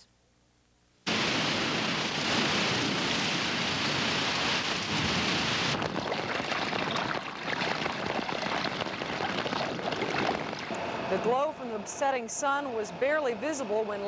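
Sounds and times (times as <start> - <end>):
heavy rain downpour: 1.1 - 7.0
rain splashing on flooded street: 1.1 - 10.7.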